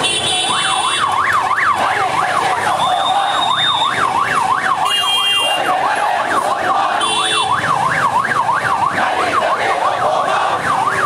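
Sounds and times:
electronic siren yelping: 0.4s - 11.0s.

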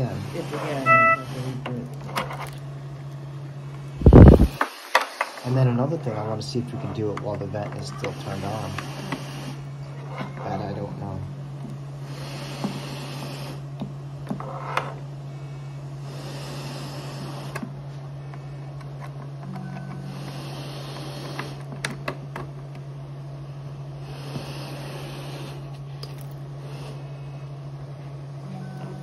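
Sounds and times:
ventilator hum: 0.0s - 29.0s
air hissing through tubing: 8.0s - 9.6s, 12.0s - 13.7s, 16.0s - 17.7s, 20.0s - 21.7s, 24.0s - 25.8s.

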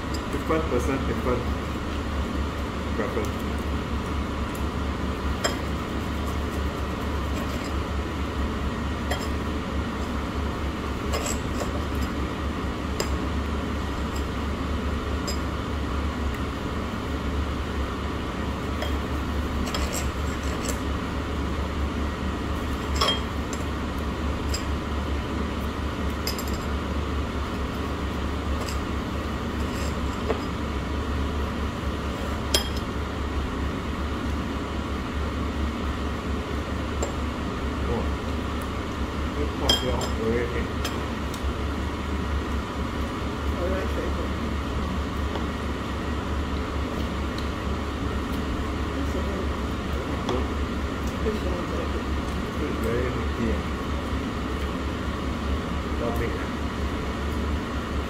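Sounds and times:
steady low hum: 0.0s - 58.0s
clinks of glasses and dishes: 23.0s - 23.3s, 39.7s - 40.2s.

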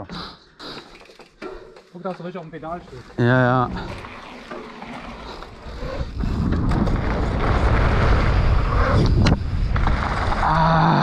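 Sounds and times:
bike rolling fast: 2.2s - 11.0s
wind on microphone: 5.7s - 10.6s.

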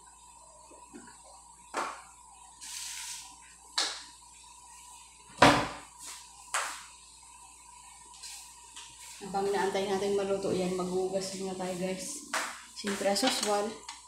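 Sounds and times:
short hiss: 2.6s - 3.4s.

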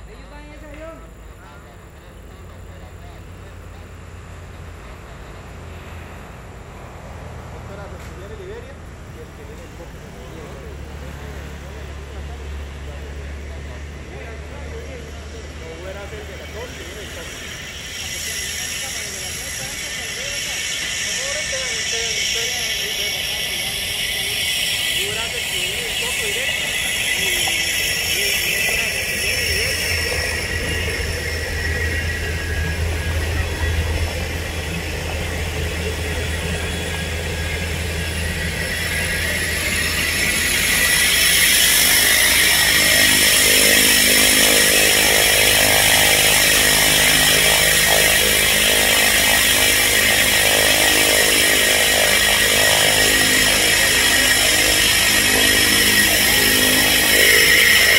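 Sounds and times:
turboprop engine whine: 0.0s - 57.9s.

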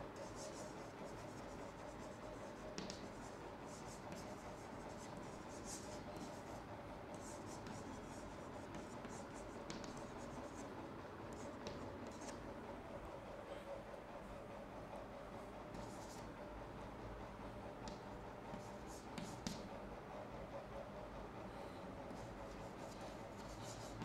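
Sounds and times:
faint steady hum: 0.0s - 24.0s
chalk scratching on blackboard: 0.2s - 10.6s, 17.9s - 19.7s, 22.1s - 24.0s.

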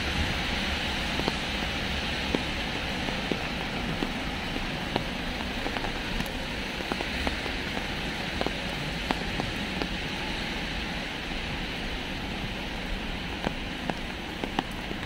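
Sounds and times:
raindrops ticking: 0.0s - 15.0s
steady rain falling: 0.0s - 15.0s.

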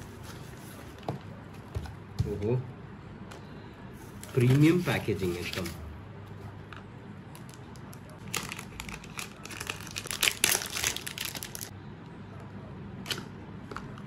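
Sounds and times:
packaging crinkling and rustling: 7.4s - 11.7s.

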